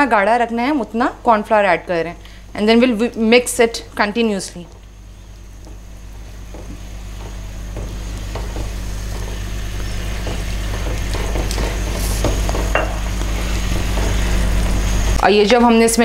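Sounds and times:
steady low hum: 0.0 - 16.0
spatula scraping and tapping a pan: 6.4 - 14.4.

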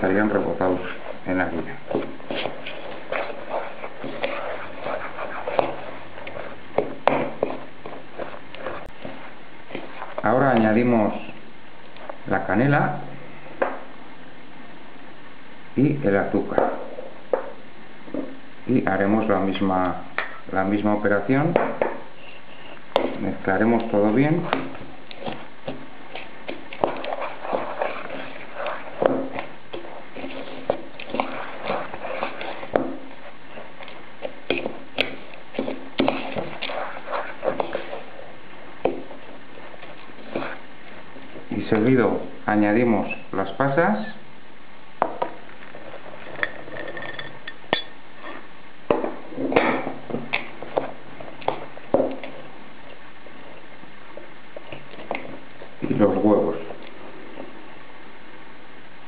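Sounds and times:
fork stirring dry cereal: 0.0 - 10.7, 22.2 - 41.9
fork scraping a bowl: 2.3 - 6.6, 26.1 - 38.4, 39.0 - 40.6.

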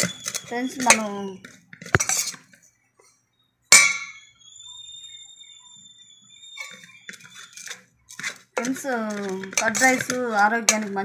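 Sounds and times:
metal bowl ringing: 3.7 - 4.3.

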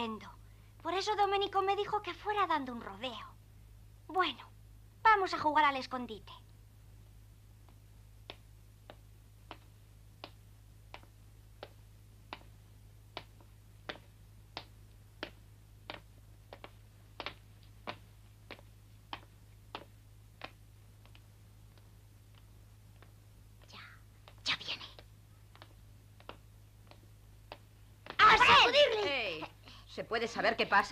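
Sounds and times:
footsteps on stone steps: 10.9 - 23.7, 25.4 - 29.2.

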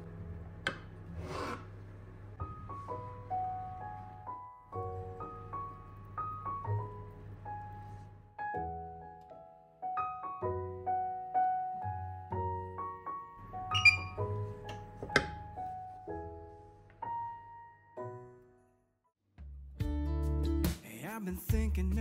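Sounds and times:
gentle piano melody: 0.0 - 1.1, 2.3 - 18.8.

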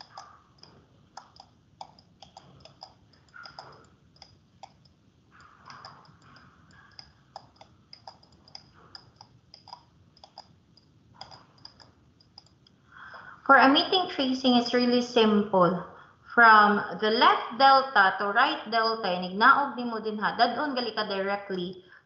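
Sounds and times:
computer mouse clicking: 0.0 - 12.8.

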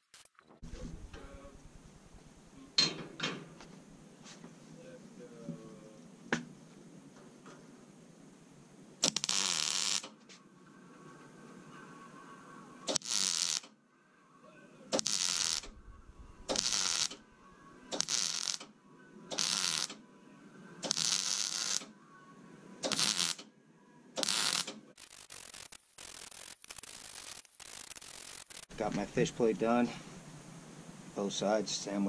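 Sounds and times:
electric welding arc crackling: 9.0 - 10.2, 12.9 - 13.8, 14.9 - 17.2, 17.9 - 18.7, 19.3 - 20.0, 20.8 - 21.9, 22.8 - 23.4, 24.2 - 28.8.

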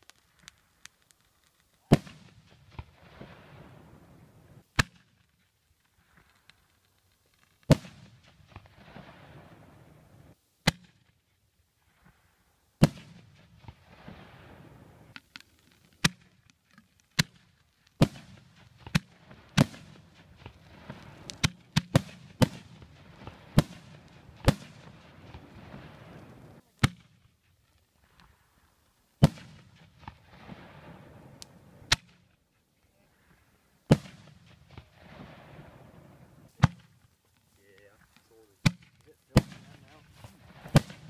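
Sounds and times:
fireworks bangs: 1.8 - 5.2, 7.6 - 11.0, 12.8 - 15.2, 17.2 - 27.2, 29.2 - 32.3, 33.8 - 41.0.

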